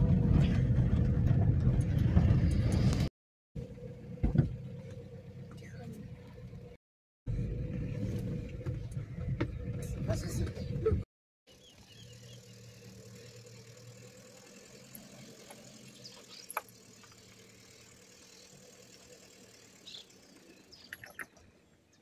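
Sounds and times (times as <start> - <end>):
car engine idling: 11.5 - 21.0.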